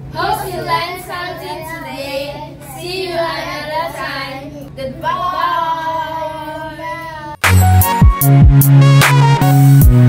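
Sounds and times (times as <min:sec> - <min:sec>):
children singing without accompaniment: 0:00.0 - 0:07.9.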